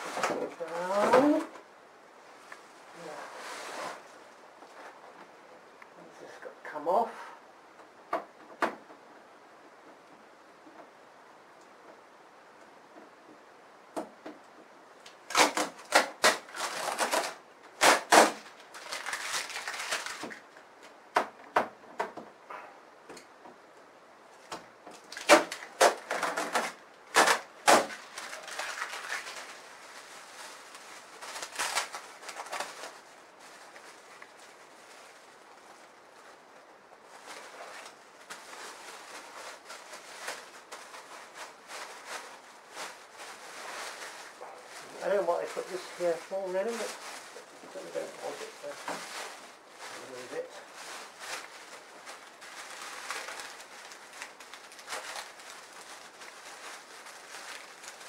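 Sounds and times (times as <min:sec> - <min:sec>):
plastic bag rustling: 0:00.0 - 0:05.2, 0:15.0 - 0:21.0, 0:24.2 - 0:58.0
packing tape and plastic snapping: 0:15.0 - 0:22.3, 0:24.4 - 0:29.6, 0:31.2 - 0:33.0.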